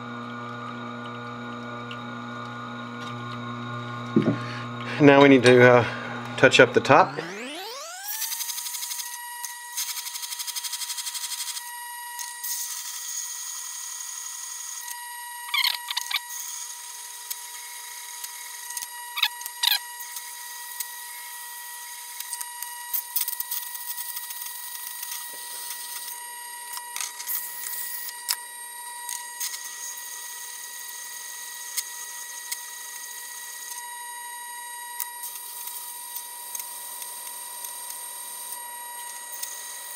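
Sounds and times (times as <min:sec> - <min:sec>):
sharpening machine motor whine: 0:00.0 - 0:39.9.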